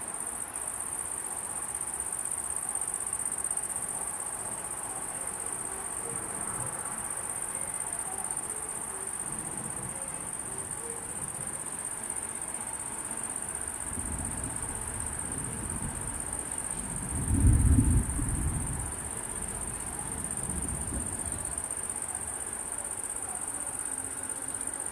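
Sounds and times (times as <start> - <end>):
night insects chorus: 0.0 - 24.9
thunder rumbling: 14.0 - 21.5.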